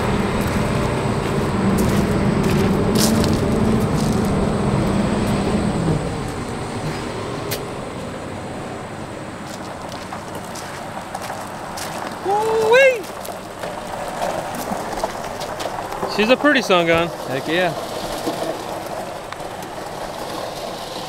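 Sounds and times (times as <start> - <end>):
tow truck mechanical hum: 0.0 - 21.0.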